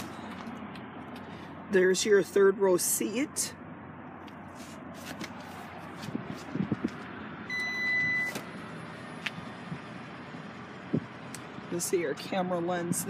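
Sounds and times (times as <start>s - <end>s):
electronic beep: 7.5s - 8.4s.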